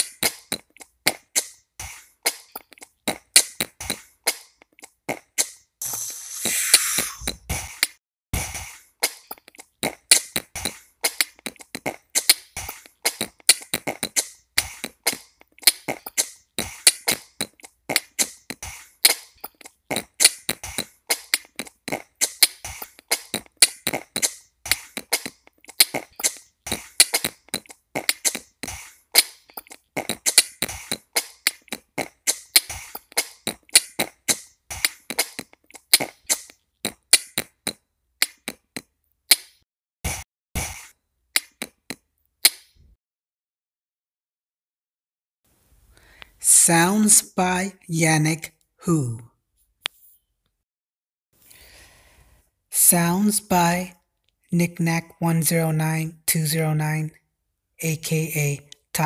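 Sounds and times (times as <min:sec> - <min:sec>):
beatboxing: 0:00.0 - 0:38.9, 0:40.1 - 0:42.0.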